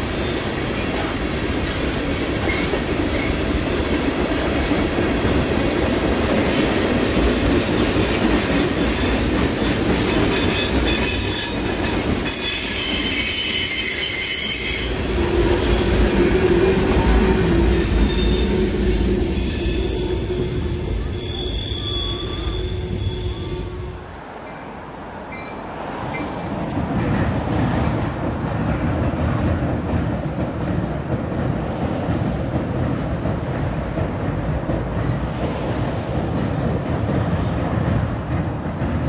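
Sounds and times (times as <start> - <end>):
steel wheels squealing on rails: 0.0 - 26.5, 32.4 - 34.5
freight train cars rolling: 0.0 - 39.0.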